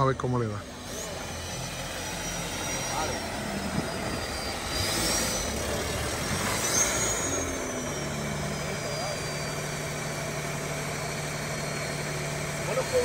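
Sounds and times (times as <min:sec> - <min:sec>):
engine revving: 0:00.0 - 0:13.0
faint high whistle: 0:01.0 - 0:05.7, 0:06.4 - 0:09.9.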